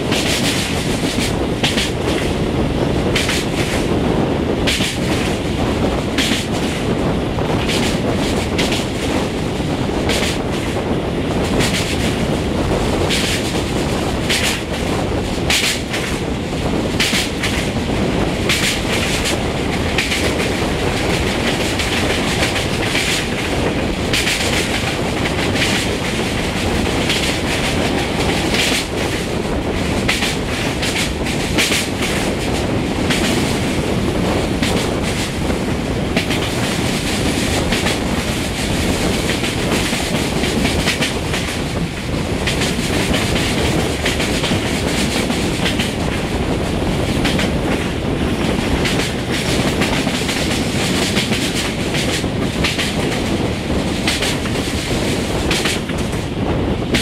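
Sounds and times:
train wheels rumbling: 0:00.0 - 0:57.0
wheels clacking over rail joints: 0:13.0 - 0:57.0.

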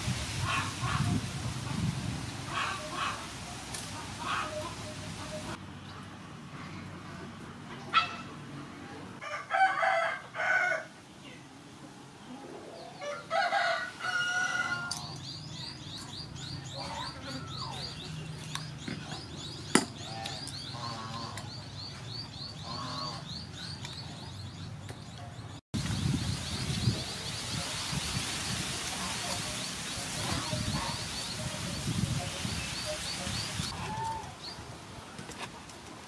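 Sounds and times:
chickens calling: 0:00.3 - 0:06.1, 0:12.3 - 0:34.8.

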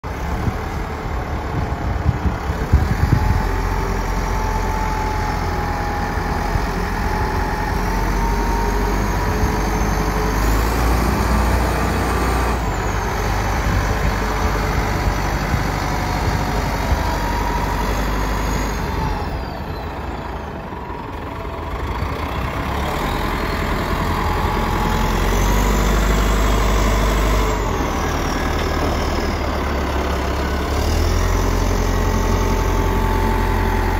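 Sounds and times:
engine whine: 0:00.0 - 0:33.9
wheel loader diesel engine: 0:00.0 - 0:33.9.

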